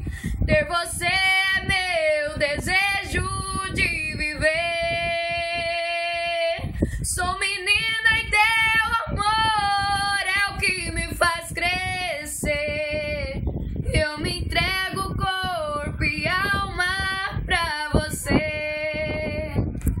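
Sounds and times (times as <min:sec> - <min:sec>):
woman singing unaccompanied: 0:00.3 - 0:19.8.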